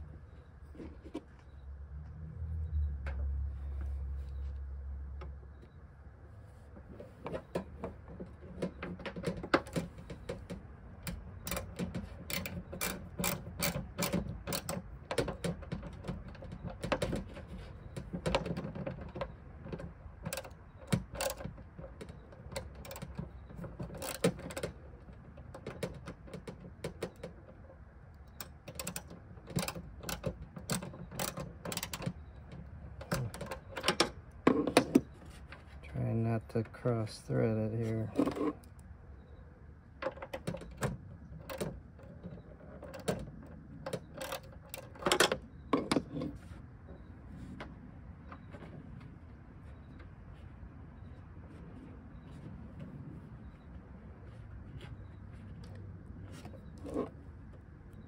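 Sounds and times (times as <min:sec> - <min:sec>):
socket ratchet clicking: 0:09.5 - 0:17.0, 0:28.3 - 0:34.1.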